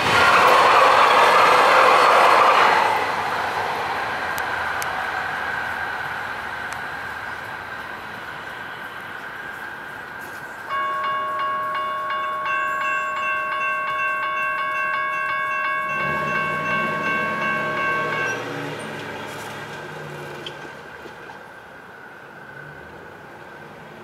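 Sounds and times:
electronic crossing bell ringing: 0:10.7 - 0:19.2
car engine passing: 0:15.2 - 0:21.0.

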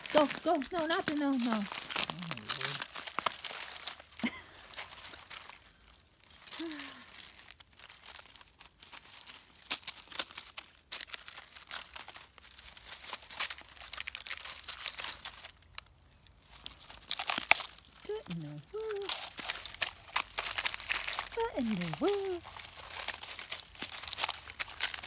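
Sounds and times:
puppy chewing sticks: 0:00.0 - 0:04.1, 0:13.0 - 0:25.0.

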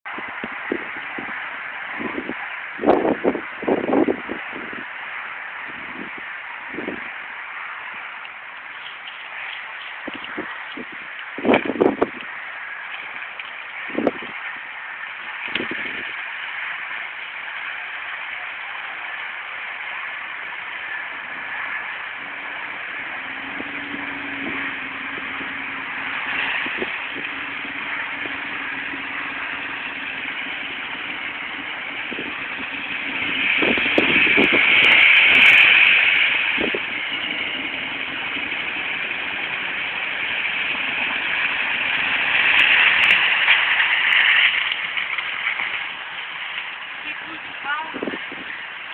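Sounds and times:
truck engine running: 0:00.0 - 0:48.9.

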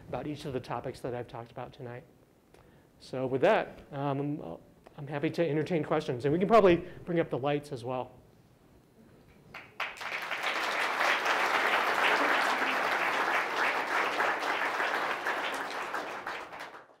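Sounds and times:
audience applauding: 0:09.5 - 0:17.0.

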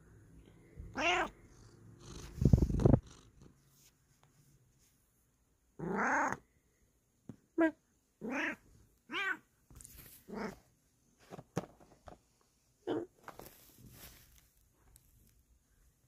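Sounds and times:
cat meowing: 0:00.9 - 0:01.4, 0:05.8 - 0:06.4, 0:07.6 - 0:09.5
cat rubbing against phone: 0:02.1 - 0:03.0.

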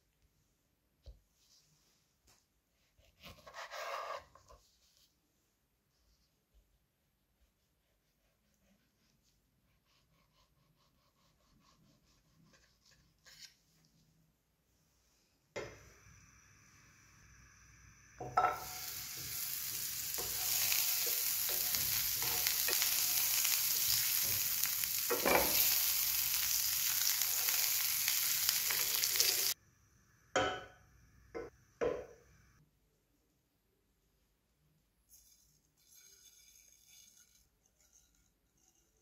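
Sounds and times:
spatula scraping a pan: 0:03.1 - 0:04.6, 0:18.4 - 0:29.6, 0:35.1 - 0:39.0
butter sizzling in a frying pan: 0:15.8 - 0:29.6.

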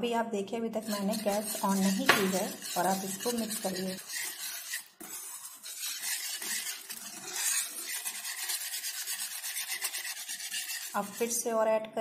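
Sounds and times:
whisk scraping in a pan: 0:00.8 - 0:11.5.

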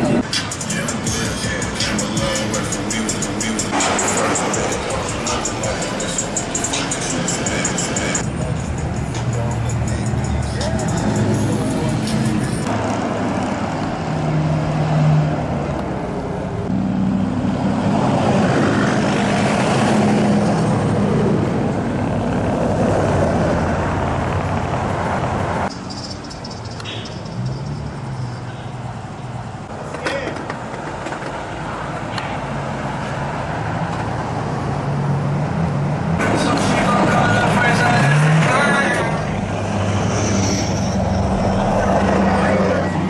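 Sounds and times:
people's voices: 0:00.0 - 0:12.7, 0:29.7 - 0:32.4, 0:36.2 - 0:43.0
traffic and tyre noise: 0:00.0 - 0:43.0
truck engines revving: 0:00.0 - 0:43.0.

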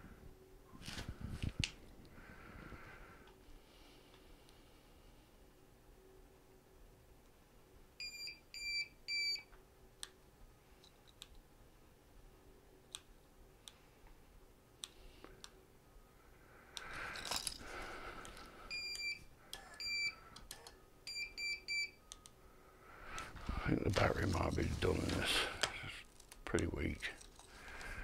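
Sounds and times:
handling rustle: 0:23.3 - 0:28.0.

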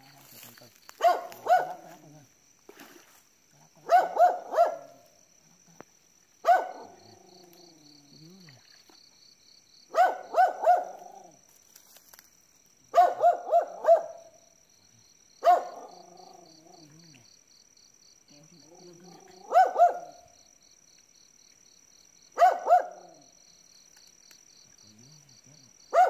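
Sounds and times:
dog barking: 0:01.0 - 0:02.0, 0:03.8 - 0:05.0, 0:06.4 - 0:07.0, 0:09.9 - 0:11.2, 0:12.9 - 0:14.4, 0:15.4 - 0:16.4, 0:19.4 - 0:20.2, 0:22.4 - 0:23.2.

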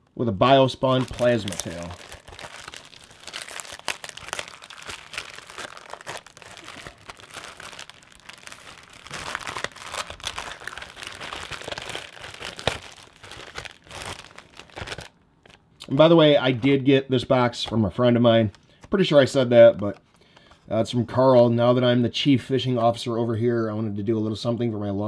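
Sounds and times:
paper packet rustling: 0:00.8 - 0:15.6
plastic bag crinkling: 0:00.8 - 0:15.6.

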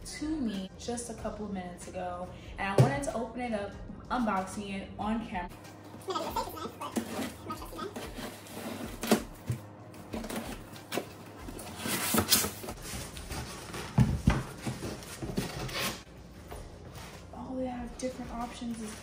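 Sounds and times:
packing tape tearing: 0:06.9 - 0:12.8
cardboard scraping and rustling: 0:06.9 - 0:16.1.

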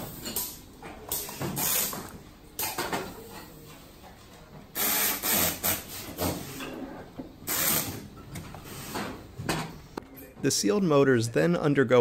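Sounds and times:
air screwdriver hissing bursts: 0:04.8 - 0:06.2, 0:07.5 - 0:08.0.

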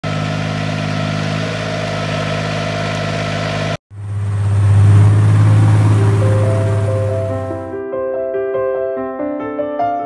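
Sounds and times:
engine running steadily: 0:00.0 - 0:07.7.

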